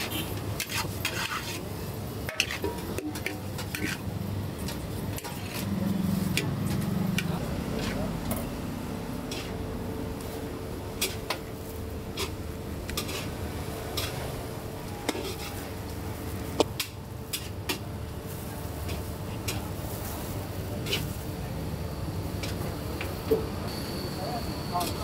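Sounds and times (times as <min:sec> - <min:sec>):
metal spatula scraping pan: 0:00.0 - 0:04.1, 0:05.1 - 0:06.8, 0:09.3 - 0:09.6, 0:13.0 - 0:14.4, 0:15.1 - 0:15.7.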